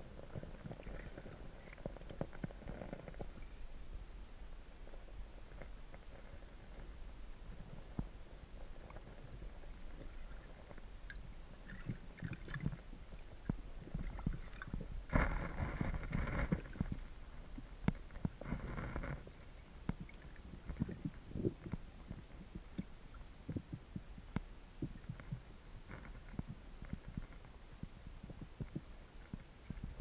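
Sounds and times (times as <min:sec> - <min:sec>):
underwater current rumble: 0:00.0 - 0:30.0
small underwater clicks: 0:00.1 - 0:03.6, 0:04.9 - 0:30.0.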